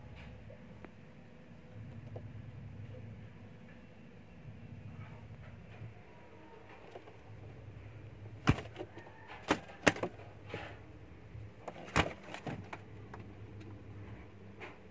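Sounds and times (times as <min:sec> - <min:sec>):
low steady hum: 0:00.0 - 0:14.9
pigeon wings flapping: 0:08.4 - 0:10.2, 0:11.6 - 0:13.2.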